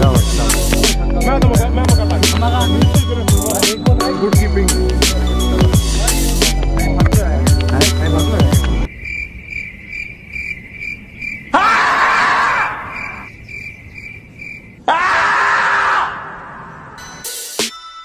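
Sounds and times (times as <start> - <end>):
music: 0.0 - 8.9, 17.0 - 18.0
crickets chirping: 7.9 - 14.9
marmot screaming: 11.5 - 13.3, 14.8 - 16.4.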